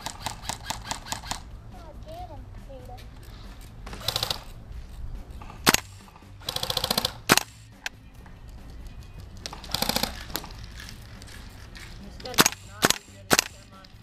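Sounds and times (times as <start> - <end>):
airsoft rifle automatic bursts: 0.0 - 1.4, 4.0 - 4.5, 5.6 - 7.5, 12.3 - 13.7
single sharp gun cracks: 5.5 - 8.0, 12.2 - 13.7.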